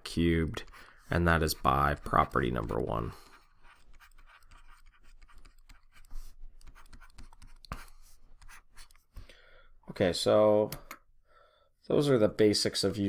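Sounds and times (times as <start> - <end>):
stylus scratching on tablet screen: 0.1 - 9.2.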